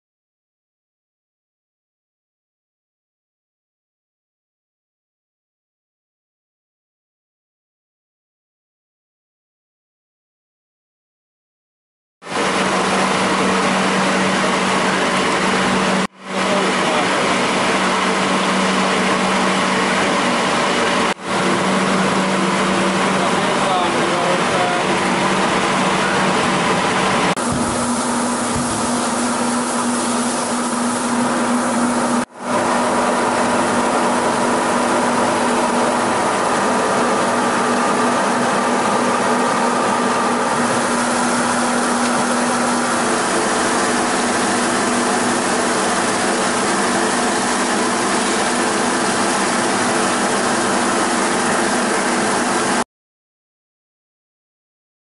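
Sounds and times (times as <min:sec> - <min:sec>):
motor and pump hum: 0:12.2 - 0:52.8.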